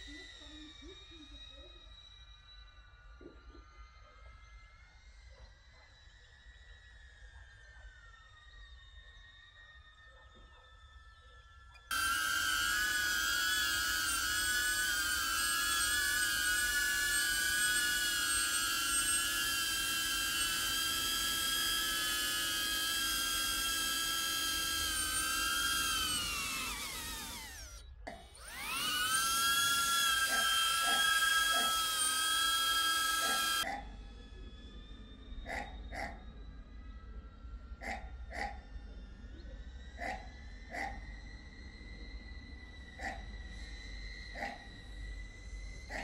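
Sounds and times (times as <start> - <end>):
drone propellers whining: 11.8 - 46.0.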